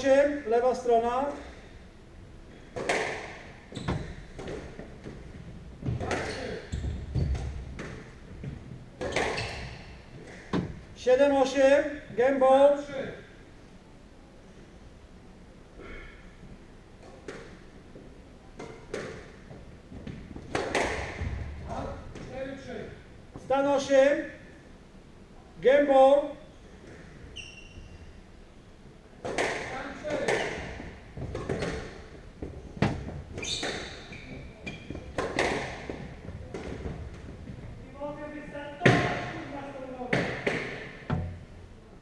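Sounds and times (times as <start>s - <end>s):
squash ball knocks: 2.7s - 3.5s, 20.0s - 22.3s
squash ball cracking off rackets: 2.7s - 5.2s, 20.1s - 21.4s, 35.1s - 37.2s
shoes squeaking on wooden floor: 3.6s - 10.6s, 26.4s - 28.2s, 30.1s - 37.9s.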